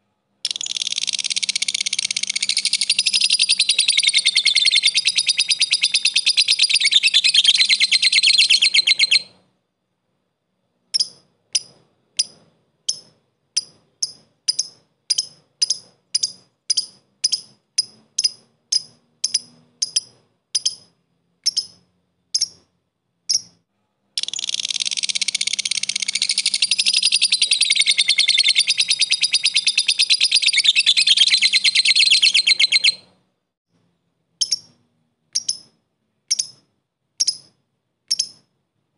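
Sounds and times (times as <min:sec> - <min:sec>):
lovebird chattering trill: 0:00.4 - 0:09.4, 0:10.9 - 0:22.7, 0:23.3 - 0:23.6, 0:24.2 - 0:33.1, 0:34.4 - 0:34.8, 0:35.4 - 0:36.6, 0:37.2 - 0:37.5, 0:38.1 - 0:38.5
lovebird short chirps: 0:00.4 - 0:09.4, 0:24.2 - 0:33.1.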